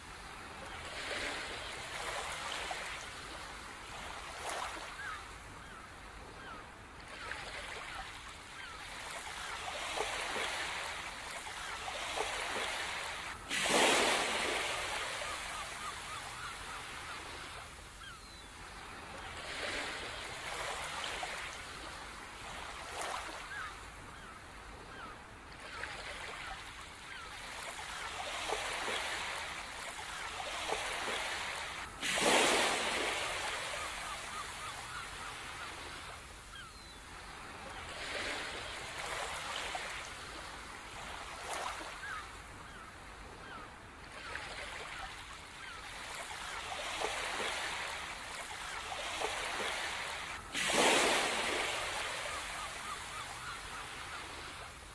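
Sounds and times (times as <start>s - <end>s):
faint short bird calls: 4.5s - 12.9s, 13.8s - 18.6s, 23.0s - 31.7s, 32.4s - 37.0s, 41.4s - 54.8s
ocean surf washing: 9.7s - 17.8s, 30.6s - 36.0s, 46.9s - 54.9s.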